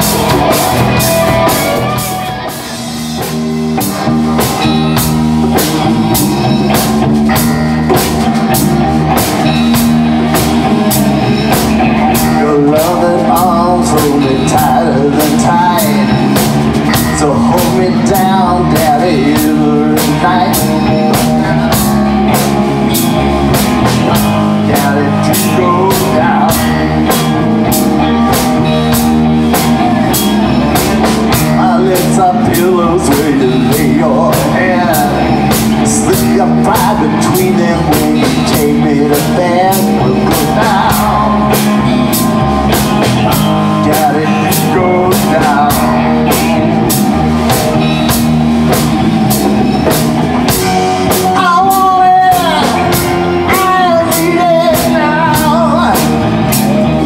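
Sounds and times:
rock band playing live: 0.0s - 57.0s
man singing: 12.0s - 23.2s, 23.8s - 29.0s, 31.3s - 48.2s, 49.8s - 57.0s.

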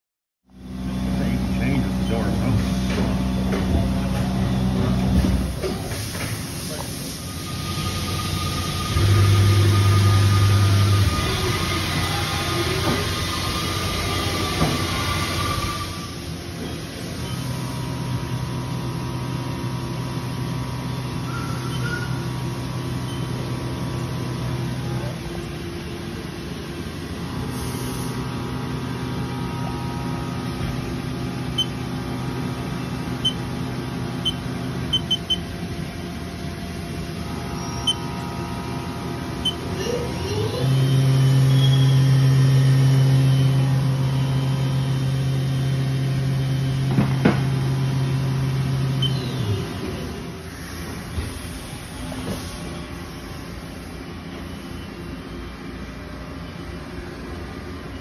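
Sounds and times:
mill spindle humming: 16.8s - 27.5s, 28.1s - 46.9s, 47.5s - 51.1s
short keypad beeps: 31.6s - 31.8s, 34.2s - 35.5s, 49.0s - 49.2s.

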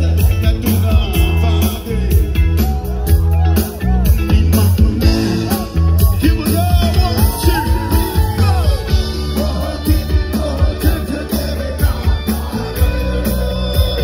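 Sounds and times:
live band music with singer: 0.0s - 14.0s.

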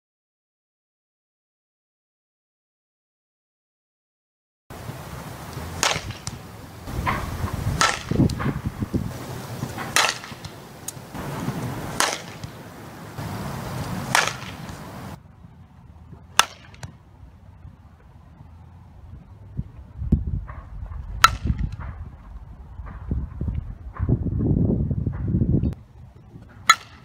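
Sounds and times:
bat cracking against ball: 5.2s - 15.2s, 16.1s - 17.0s, 20.4s - 22.1s, 26.4s - 27.0s.

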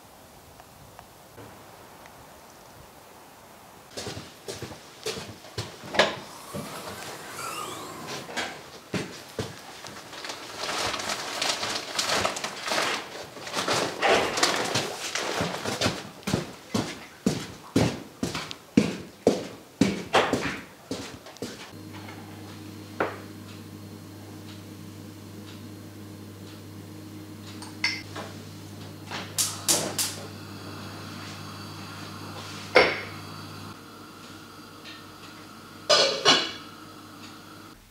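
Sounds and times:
plastic sack rustling and crinkling: 8.5s - 17.2s
steady low hum: 21.7s - 37.8s.

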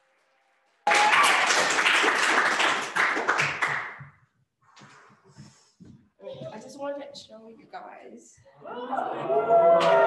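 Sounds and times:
small group clapping: 0.8s - 4.2s, 9.5s - 10.0s.

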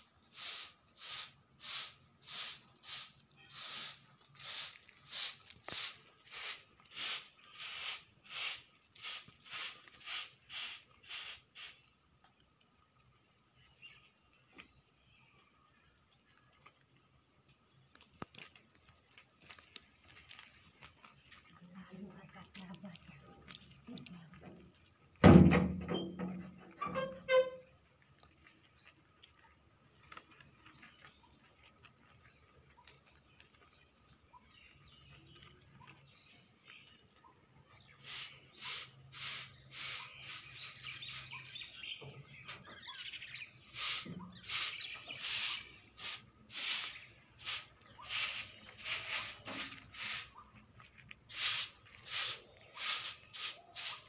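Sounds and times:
rabbits crunching leafy greens: 0.0s - 25.5s, 26.4s - 54.0s
loud thump: 25.2s - 25.9s.

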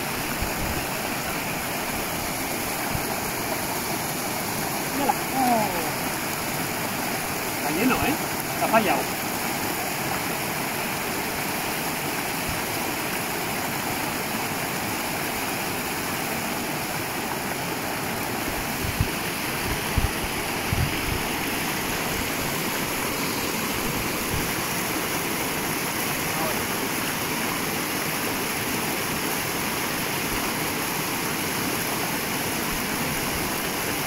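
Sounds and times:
stream rushing over rocks: 0.0s - 34.0s.

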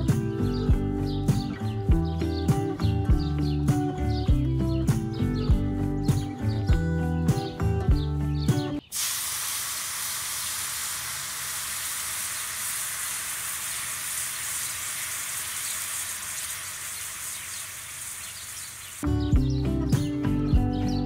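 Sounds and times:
batter sizzling in hot oil: 8.9s - 19.0s.

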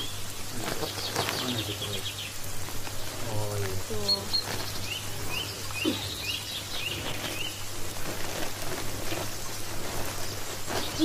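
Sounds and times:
small bird chirping: 0.0s - 8.4s, 9.0s - 11.0s
soft rustling: 2.3s - 11.0s.

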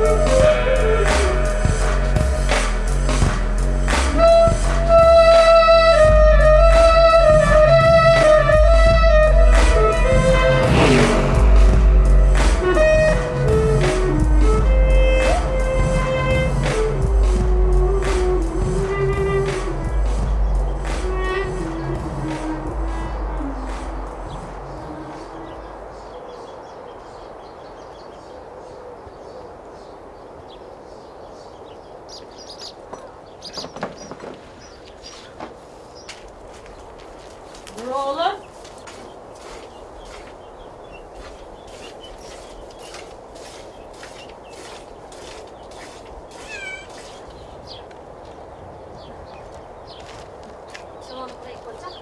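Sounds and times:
steady low hiss: 0.0s - 52.0s
steady outdoor background: 0.0s - 52.0s
dove cooing: 6.6s - 26.2s, 46.4s - 47.0s
small birds chirping: 17.2s - 52.0s
cat meowing: 46.4s - 47.2s.

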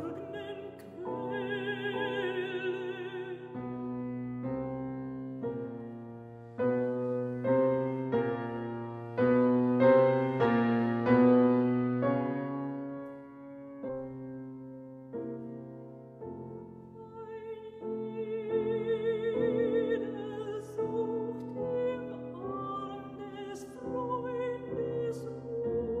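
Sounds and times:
soprano singing: 0.0s - 14.7s, 15.3s - 26.0s
piano accompaniment: 0.0s - 26.0s.

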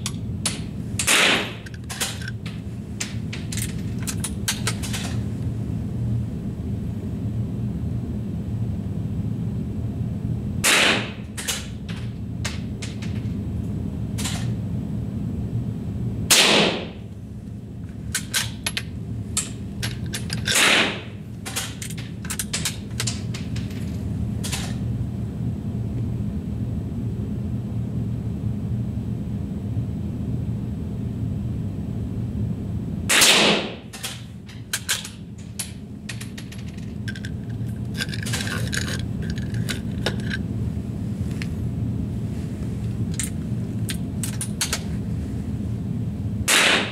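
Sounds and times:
steady low hum: 0.0s - 46.9s
rifle shots: 16.3s - 16.9s, 20.6s - 21.0s, 33.1s - 33.7s, 46.5s - 46.9s.

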